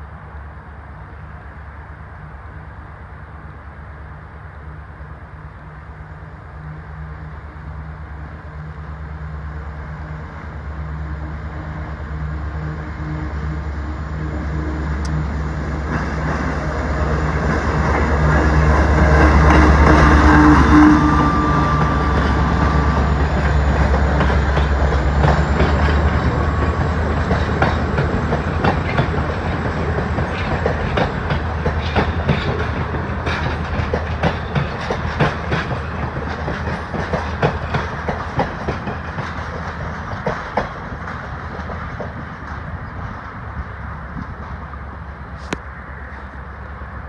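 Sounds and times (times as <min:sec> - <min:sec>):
diesel locomotive engine drone: 0:00.0 - 0:47.0
train wheels clickety-clack: 0:15.0 - 0:44.8.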